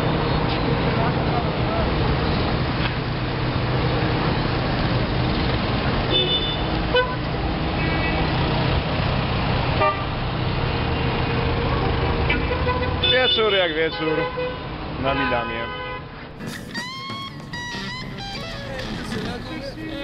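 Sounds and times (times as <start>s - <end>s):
hum of vehicle engines: 0.0s - 13.6s, 16.1s - 20.0s
car horn toots: 15.8s - 20.0s.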